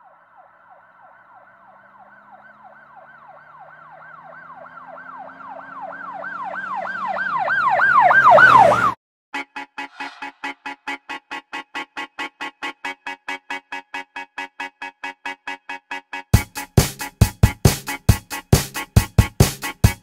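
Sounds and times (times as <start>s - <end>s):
vehicle engine: 0.0s - 8.9s
emergency siren yelping: 0.0s - 9.0s
music: 9.3s - 20.0s.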